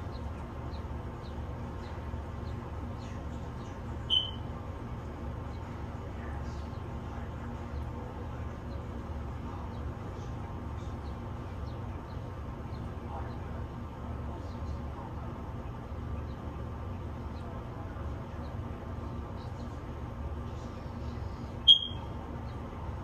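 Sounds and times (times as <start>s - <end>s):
bird chirps: 0.0s - 4.5s, 21.6s - 22.6s
steady low rumble: 0.0s - 23.0s.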